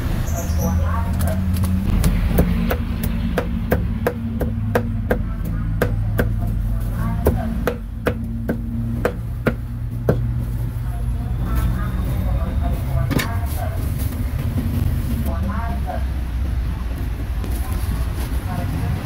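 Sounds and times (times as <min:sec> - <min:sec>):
cleaver chopping meat on wood: 0:01.9 - 0:06.4, 0:07.2 - 0:10.3.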